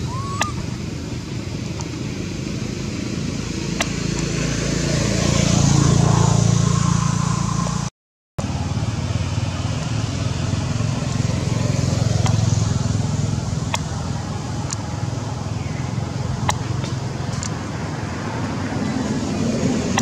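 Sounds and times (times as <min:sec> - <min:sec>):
vehicle engine humming: 0:00.0 - 0:20.0.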